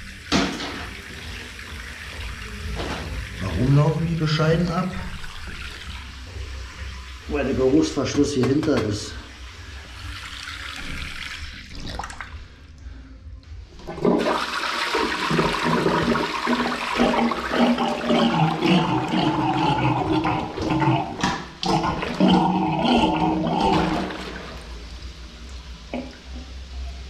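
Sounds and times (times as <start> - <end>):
toilet flushing: 0.0 - 12.6, 13.8 - 27.0
water rushing into toilet bowl: 0.0 - 12.6, 13.8 - 26.3
plunger pumping water: 13.8 - 24.9.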